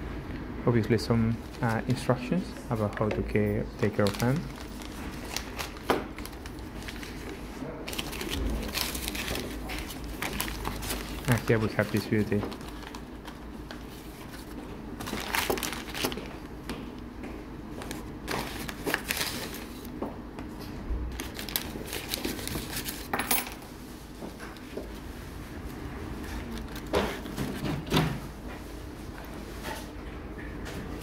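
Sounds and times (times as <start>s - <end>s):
paper rustling and crinkling: 1.3s - 2.1s, 2.7s - 16.8s, 17.7s - 20.0s, 21.1s - 23.2s, 26.2s - 28.2s.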